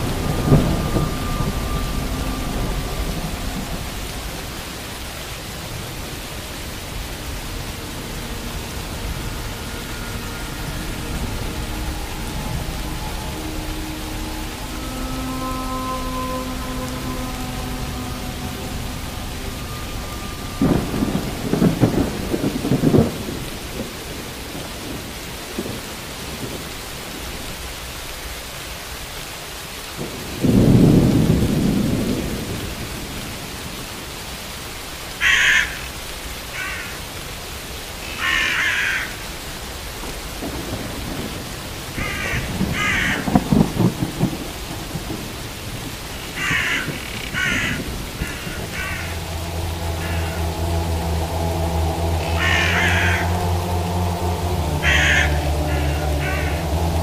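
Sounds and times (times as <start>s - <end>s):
rolling thunder: 0.0s - 27.7s, 29.9s - 34.3s, 40.0s - 57.0s
steady rain: 0.0s - 57.0s
crow cawing: 35.2s - 35.9s, 36.5s - 37.0s, 38.0s - 39.3s, 42.0s - 43.3s, 46.4s - 50.5s, 52.2s - 53.7s, 54.6s - 56.9s.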